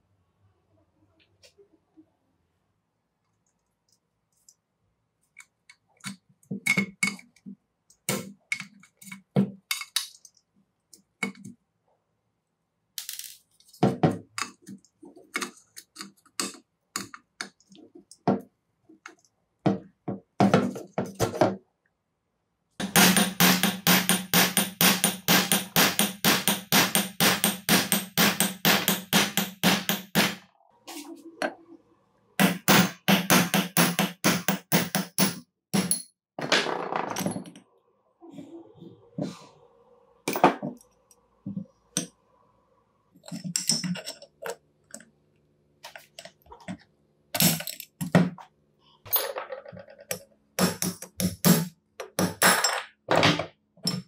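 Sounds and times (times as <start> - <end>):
hammer tapping steel punch: 22.8 - 30.4.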